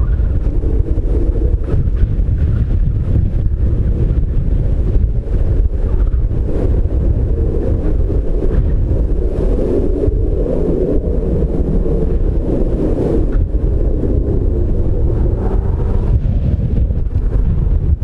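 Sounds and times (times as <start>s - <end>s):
jet engines humming: 0.0s - 18.0s
wind buffeting microphone: 0.0s - 18.0s.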